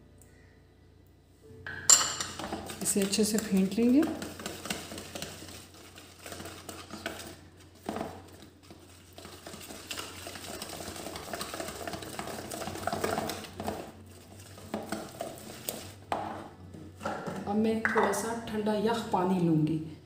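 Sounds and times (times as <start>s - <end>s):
whisk beating batter in bowl: 2.3s - 17.4s.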